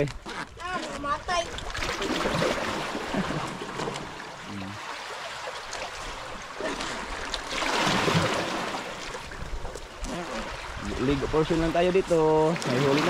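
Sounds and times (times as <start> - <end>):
water splashing and rushing: 0.0 - 13.0.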